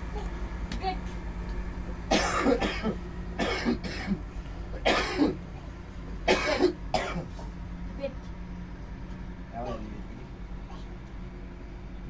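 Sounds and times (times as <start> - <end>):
person coughing: 2.1 - 4.2, 4.8 - 5.4, 6.3 - 7.4.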